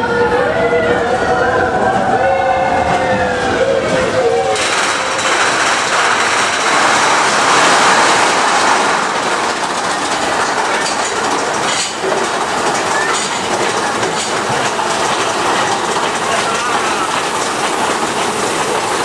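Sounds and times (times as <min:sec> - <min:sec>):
roller coaster wheels rattling on rail: 0:00.0 - 0:19.0.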